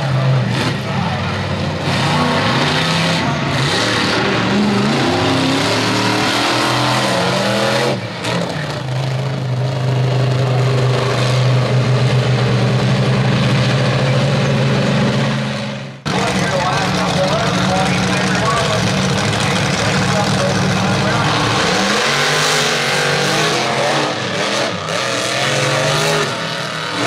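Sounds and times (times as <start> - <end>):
monster truck engines revving: 0.0 - 27.0.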